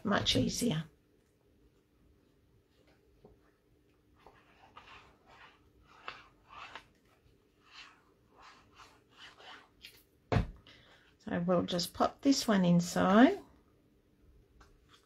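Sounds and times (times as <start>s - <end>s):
paper rustling and scraping: 4.2s - 10.0s.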